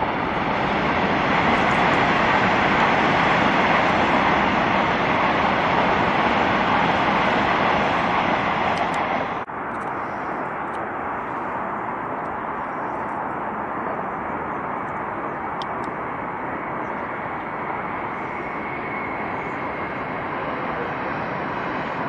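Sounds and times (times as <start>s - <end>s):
distant train on viaduct: 0.0s - 22.0s
high-speed train rushing past: 0.0s - 22.0s.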